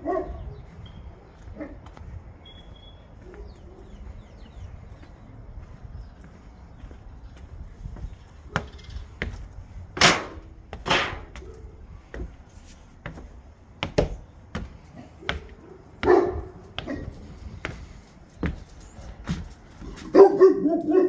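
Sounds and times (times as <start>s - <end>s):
dog barking: 0.0s - 0.6s, 1.5s - 1.8s, 3.2s - 4.0s, 15.2s - 17.2s, 20.0s - 21.0s
footsteps on wooden stairs: 4.9s - 20.2s.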